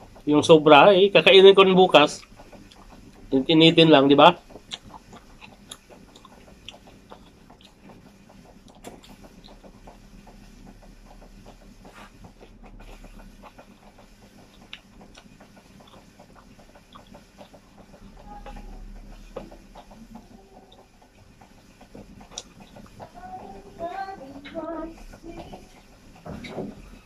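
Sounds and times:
person chewing and lip-smacking: 2.2 - 3.3, 4.4 - 10.4, 11.1 - 23.1.

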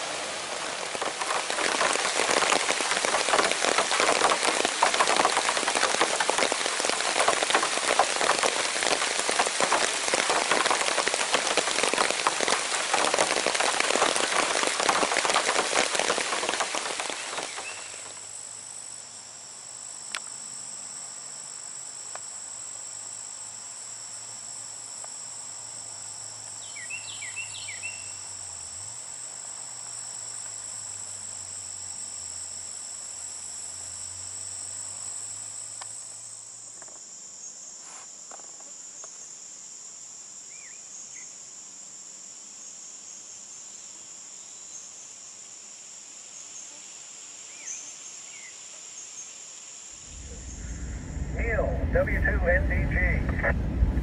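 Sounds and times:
short insect chirps: 0.0 - 51.4
insects trilling: 0.0 - 51.6.

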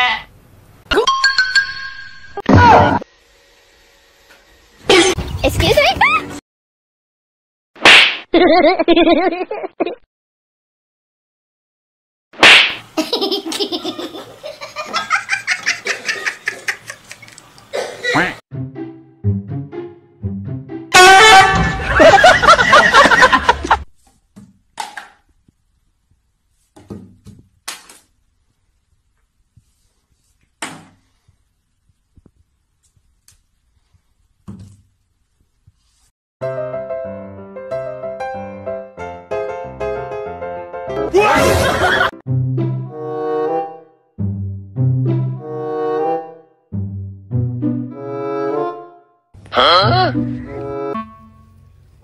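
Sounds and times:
high-pitched laughter: 8.3 - 10.0, 13.0 - 18.4.

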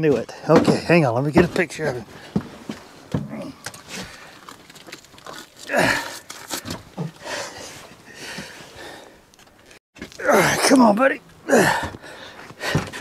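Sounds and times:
man breathing hard: 5.7 - 9.2, 11.5 - 13.0
man grunting: 10.2 - 10.8, 11.5 - 11.9.

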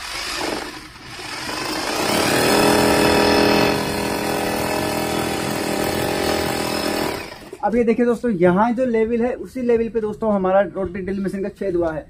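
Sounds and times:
hammer drill boring into brick: 0.0 - 7.6.

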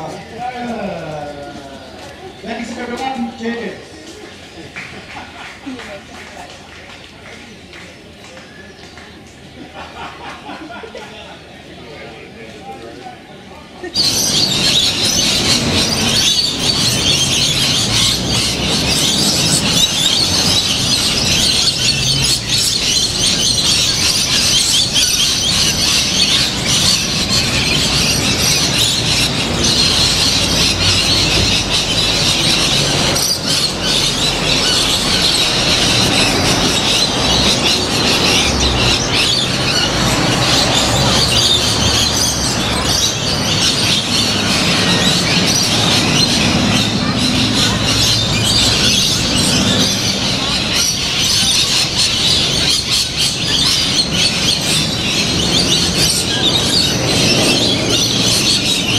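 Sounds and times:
parrots screeching and chattering: 13.9 - 58.9.

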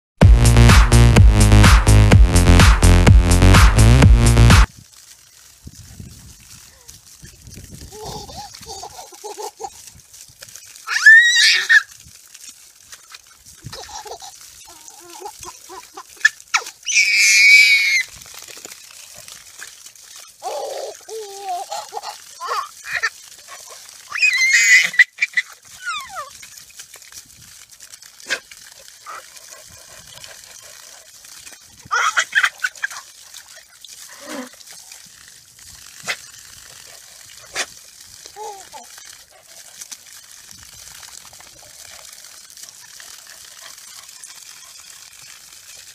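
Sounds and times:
garden hose spray hissing: 0.4 - 45.9
baby squealing: 10.8 - 11.9, 14.2 - 18.1, 20.4 - 23.1, 24.1 - 26.3, 31.9 - 33.0
baby babbling: 20.4 - 23.1, 38.3 - 38.9.

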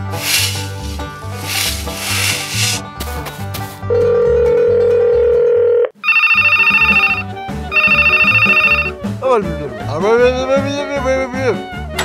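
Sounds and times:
background music with steady beat: 0.0 - 3.9, 6.4 - 12.0
telephone ringing: 3.9 - 9.0.

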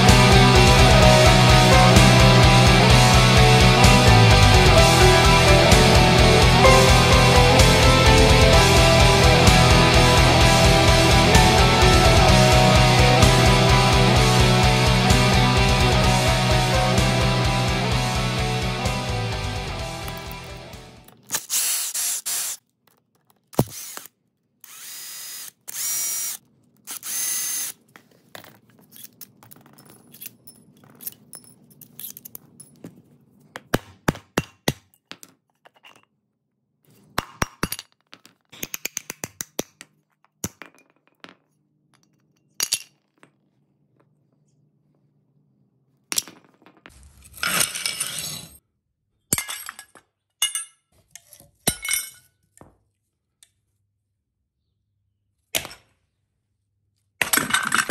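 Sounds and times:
power driver whirring: 23.6 - 27.8.

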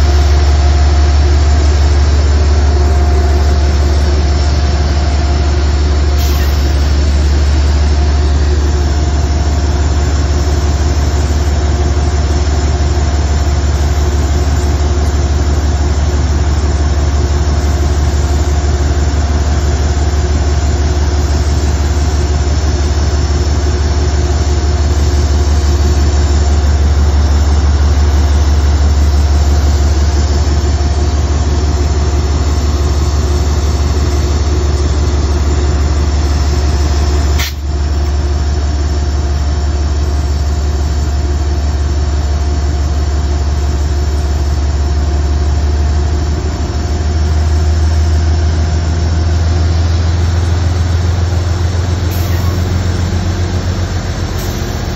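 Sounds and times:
diesel locomotive idling: 0.0 - 54.9
brief click: 37.4 - 37.7.

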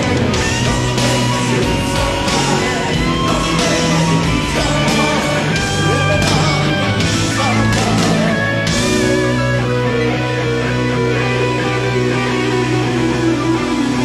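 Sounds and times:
man singing: 0.0 - 9.2
electric guitar: 0.0 - 14.0
rock band playing: 0.0 - 14.0.

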